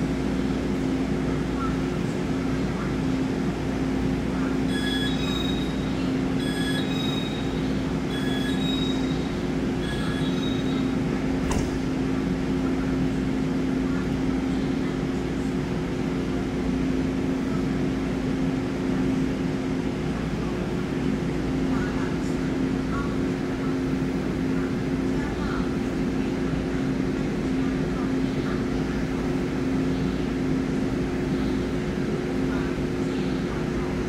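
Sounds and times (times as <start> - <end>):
train hum: 0.0 - 34.0
two-tone door warning chime: 4.7 - 5.8, 6.4 - 10.9
train door clunk: 9.9 - 12.0.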